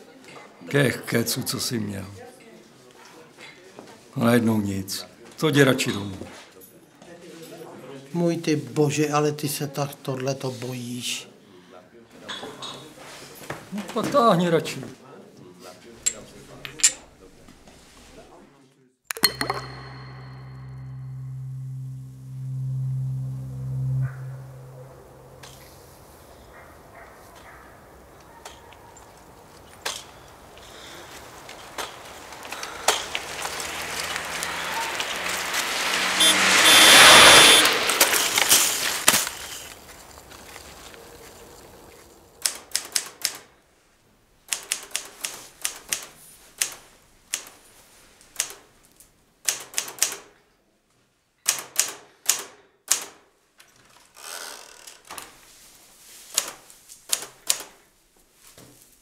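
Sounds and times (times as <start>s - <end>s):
rush of noise: 32.4s - 39.4s.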